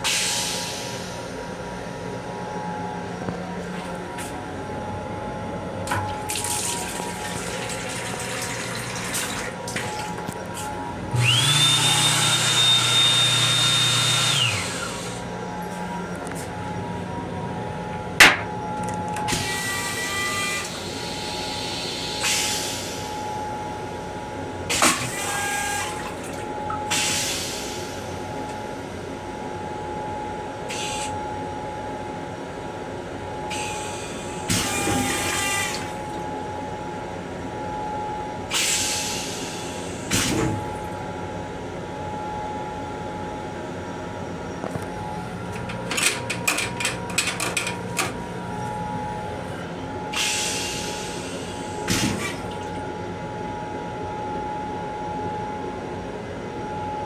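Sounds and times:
steady railcar hum: 0.0 - 11.4, 14.3 - 57.0
toilet flushing: 5.9 - 10.3, 34.5 - 36.2, 50.2 - 52.8.

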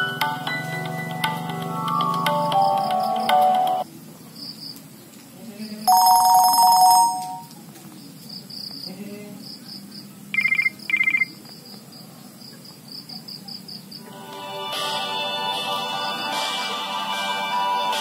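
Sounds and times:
musical ringtone: 0.0 - 3.8, 5.9 - 7.5
phone ringtone chime: 0.0 - 3.8, 5.9 - 7.5, 10.4 - 11.2
insects chirping: 1.6 - 5.0, 8.0 - 14.1
high beeps: 5.9 - 7.5, 10.4 - 11.3.

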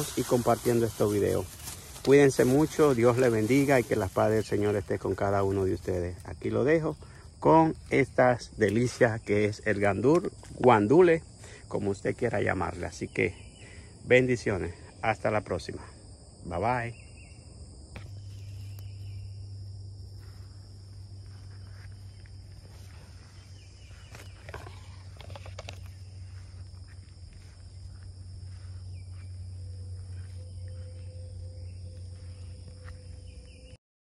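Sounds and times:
insects trilling: 0.0 - 33.8
steady low hum: 17.3 - 33.7.

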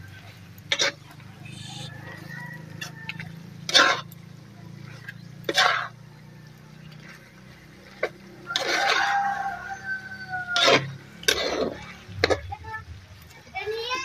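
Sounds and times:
metal ladle scraping wok: 0.7 - 1.9, 2.8 - 4.2, 5.4 - 5.9, 8.0 - 9.4, 10.5 - 12.5.

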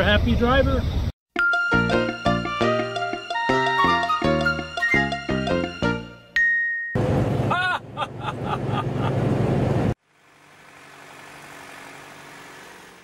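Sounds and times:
ringing chime: 6.3 - 7.0.

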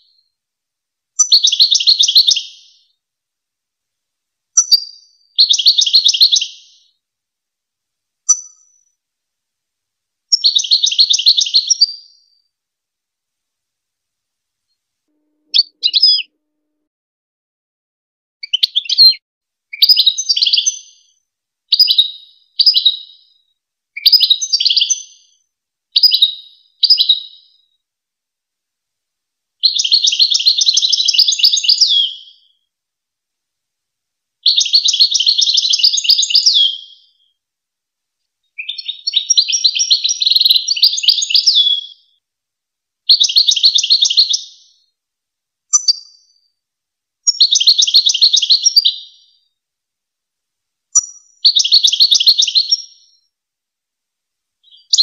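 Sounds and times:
bird twittering song: 1.2 - 3.0, 4.6 - 6.9, 8.3 - 8.9, 10.3 - 12.4, 15.4 - 16.3, 18.4 - 19.2, 19.8 - 23.4, 24.0 - 25.4, 26.0 - 27.7, 29.6 - 32.6, 34.4 - 37.3, 38.6 - 42.2, 43.1 - 44.9, 45.7 - 46.5, 47.3 - 49.4, 51.0 - 53.3, 54.6 - 55.0.

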